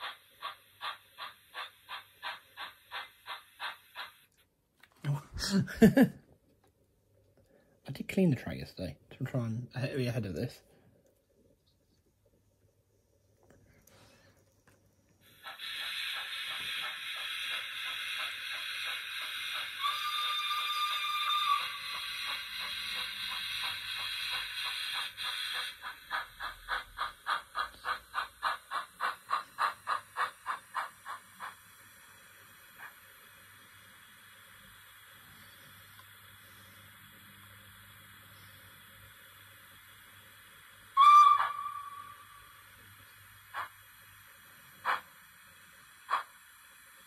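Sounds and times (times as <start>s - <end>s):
hiss of steam: 0.0s - 4.4s, 15.2s - 47.0s
steam engine chuffs: 0.0s - 4.4s, 15.2s - 47.0s.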